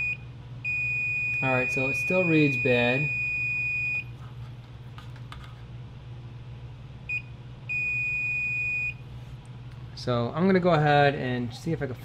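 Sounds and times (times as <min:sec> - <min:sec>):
multimeter beeping: 0:00.0 - 0:04.1, 0:07.1 - 0:09.0.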